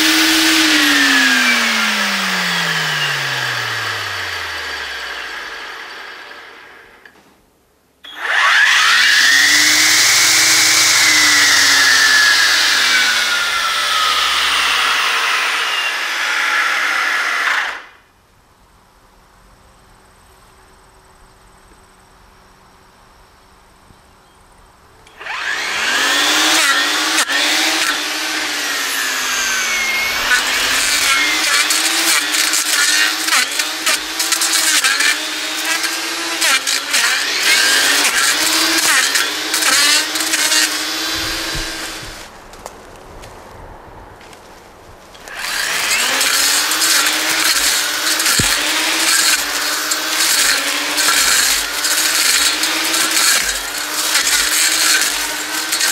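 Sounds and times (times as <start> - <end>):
electric motor whining: 0.0 - 7.1, 8.1 - 17.9, 25.1 - 42.4, 45.2 - 55.9
blade cracking wood: 25.1 - 43.4, 44.2 - 55.9.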